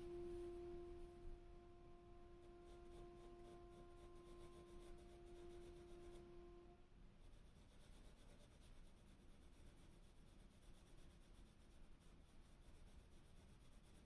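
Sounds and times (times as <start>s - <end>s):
faint steady tone: 0.0s - 6.8s.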